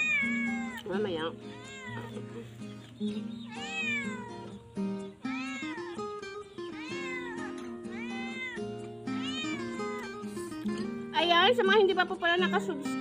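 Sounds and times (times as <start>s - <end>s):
cat-like meows: 0.0s - 2.2s, 3.5s - 4.6s, 5.3s - 10.2s.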